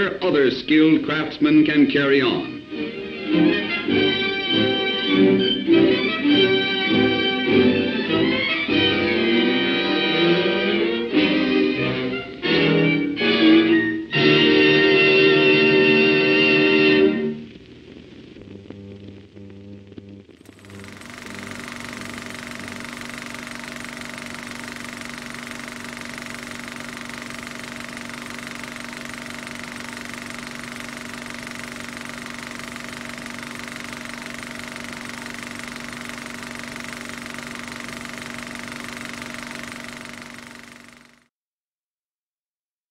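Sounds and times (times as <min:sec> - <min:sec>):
music: 0:00.0 - 0:20.8
machine hiss with hum and whine: 0:00.0 - 0:41.3.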